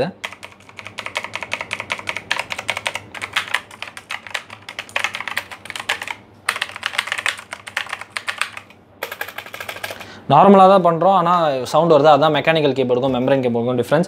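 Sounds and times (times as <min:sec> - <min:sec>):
mechanical keyboard typing: 0:00.2 - 0:10.1.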